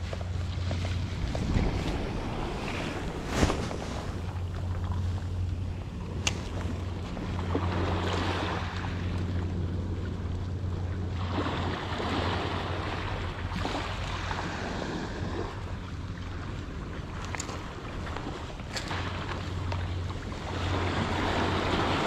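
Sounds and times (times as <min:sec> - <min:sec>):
wind on microphone: 0:00.0 - 0:09.1.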